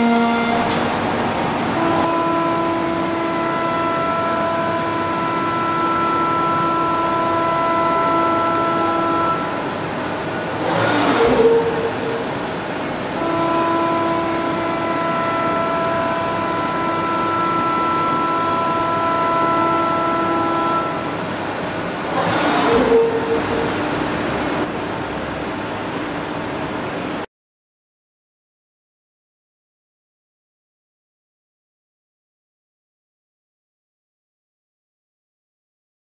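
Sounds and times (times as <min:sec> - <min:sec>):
milling machine cutting whine: 0:00.0 - 0:27.2.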